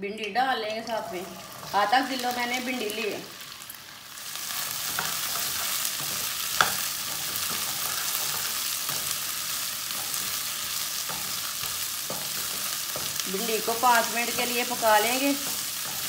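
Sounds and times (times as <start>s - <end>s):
okra sizzling in hot oil: 0.1s - 16.0s
spatula scraping pan: 4.4s - 16.0s.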